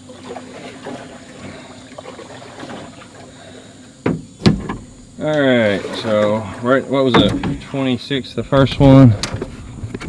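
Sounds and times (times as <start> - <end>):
water trickling: 0.0 - 4.0, 4.8 - 8.0
sharp thumps: 4.0 - 5.2, 7.1 - 7.8.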